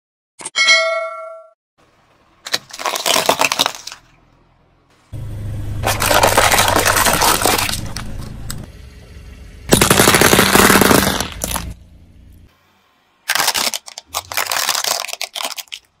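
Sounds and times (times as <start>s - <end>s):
plastic toy cars breaking: 2.4s - 4.2s, 5.8s - 8.3s, 9.7s - 11.8s, 13.2s - 16.0s
tyre crushing small objects: 2.4s - 4.2s, 5.8s - 8.5s, 9.7s - 11.8s, 13.2s - 16.0s
low steady hum: 4.0s - 13.2s.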